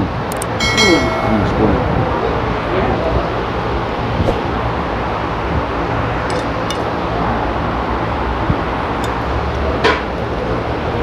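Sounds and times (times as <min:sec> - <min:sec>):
low hum and hiss: 0:00.0 - 0:11.0
faint clinks of tableware: 0:00.6 - 0:01.6.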